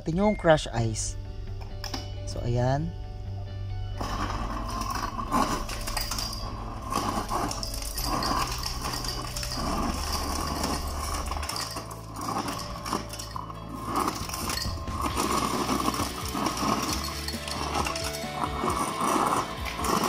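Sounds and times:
ice clattering into glass: 4.0s - 20.0s
ice dispenser motor hum: 4.0s - 20.0s.

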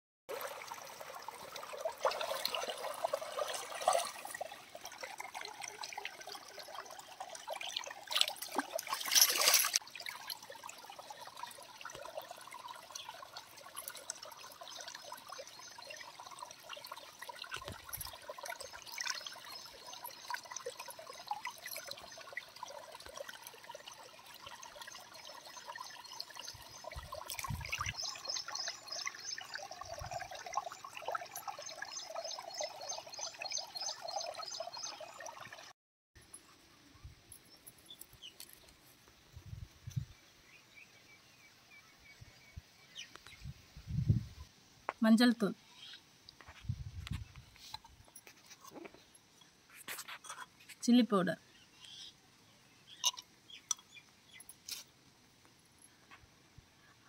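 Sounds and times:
rush of water: 0.3s - 14.0s
water splashing and trickling: 0.3s - 57.0s.

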